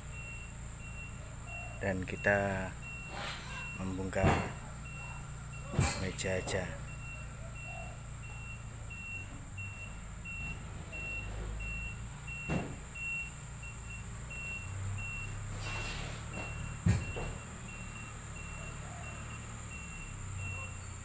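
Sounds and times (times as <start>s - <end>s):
vehicle reversing alarm beeping: 0.0s - 21.0s
sharp knocks: 12.4s - 12.8s.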